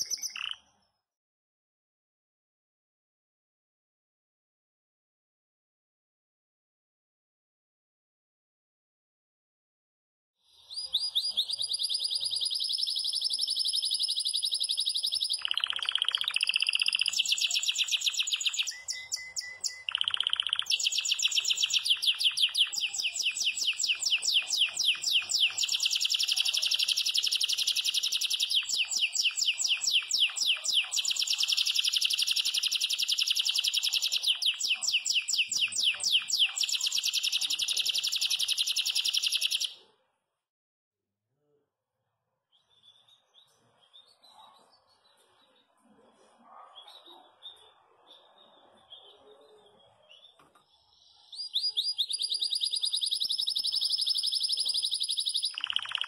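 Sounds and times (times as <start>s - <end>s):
canary singing rapid trills: 0.0s - 0.7s, 10.8s - 39.9s, 51.4s - 56.0s.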